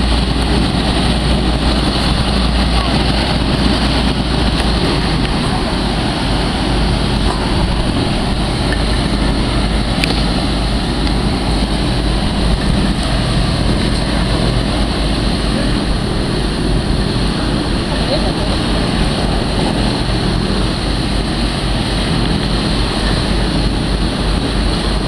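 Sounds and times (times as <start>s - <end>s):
hovercraft engines and fans: 0.0s - 25.0s.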